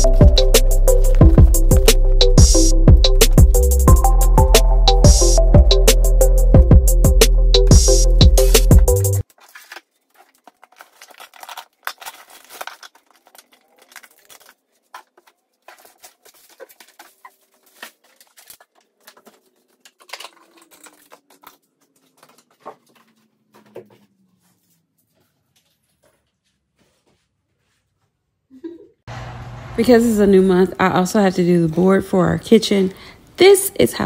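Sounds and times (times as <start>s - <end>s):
papers rustling: 8.6s - 27.8s.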